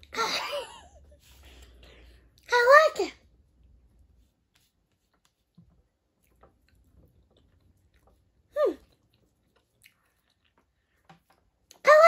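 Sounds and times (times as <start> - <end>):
person chewing: 4.5 - 11.8.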